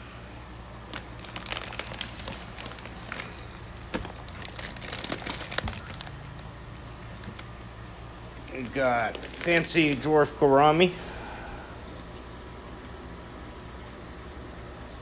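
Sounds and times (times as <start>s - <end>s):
plastic bags crinkling: 0.9s - 7.6s, 8.4s - 10.4s.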